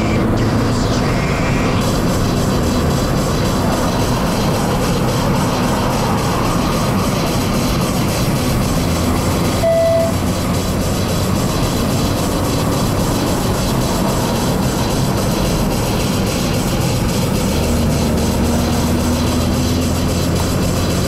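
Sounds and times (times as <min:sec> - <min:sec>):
car engine and tyre rumble: 0:00.0 - 0:21.0
short beep: 0:09.6 - 0:10.2.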